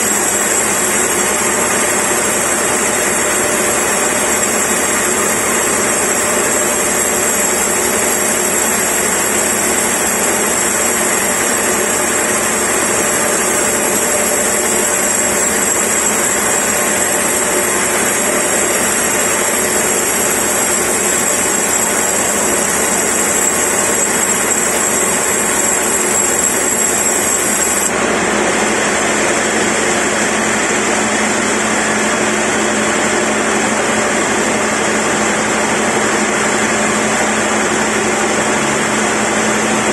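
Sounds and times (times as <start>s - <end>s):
band saw cutting log: 0.0s - 28.0s.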